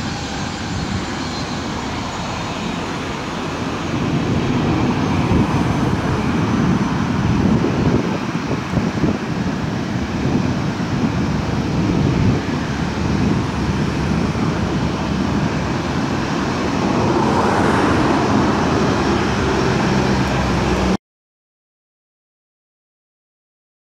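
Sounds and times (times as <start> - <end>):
jet engines at takeoff: 0.0 - 21.0.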